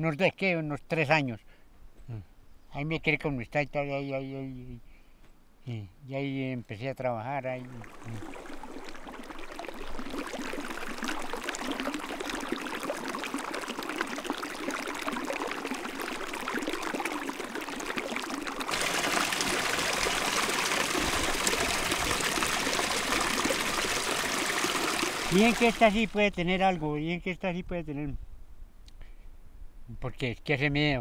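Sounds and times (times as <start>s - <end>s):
stream splashing over rocks: 7.6s - 26.4s.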